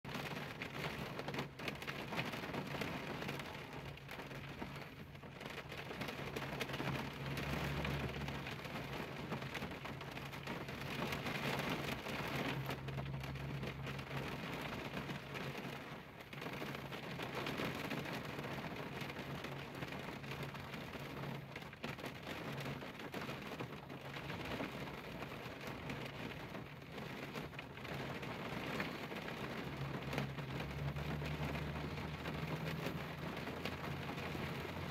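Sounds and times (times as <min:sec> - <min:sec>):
rain on car windshield: 0:00.0 - 0:34.9.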